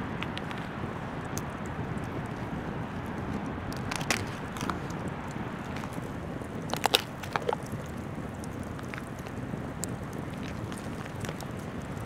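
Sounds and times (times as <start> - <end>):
wind on microphone: 0.0 - 12.0
crab shell cracking: 3.4 - 12.0.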